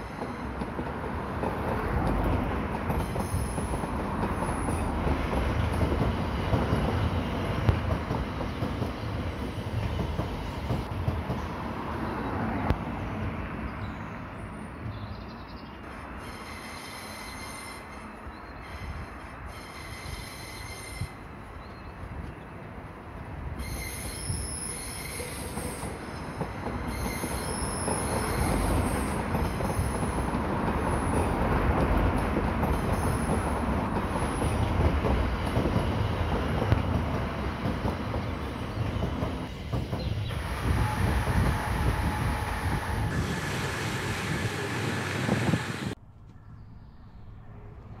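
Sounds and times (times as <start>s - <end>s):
train rumble: 0.0s - 13.6s, 15.8s - 46.0s.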